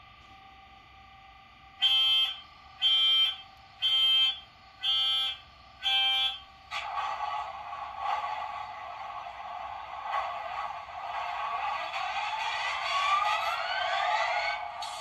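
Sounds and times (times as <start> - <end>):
buzzing alarm beeps: 1.8 - 6.6.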